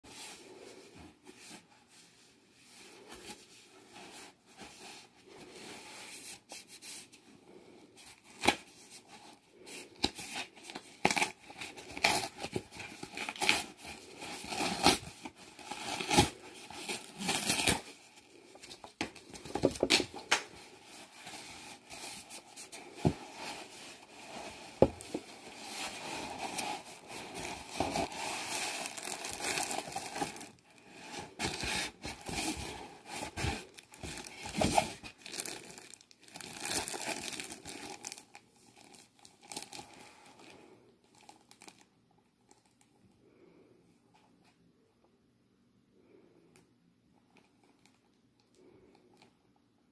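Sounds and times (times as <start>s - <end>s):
packaging crinkling: 10.8s - 39.9s.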